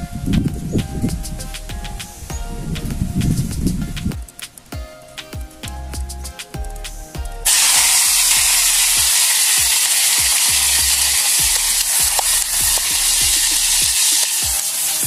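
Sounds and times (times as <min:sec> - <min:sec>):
background music with steady beat: 0:00.0 - 0:15.0
meat sizzling in hot oil: 0:07.5 - 0:15.0.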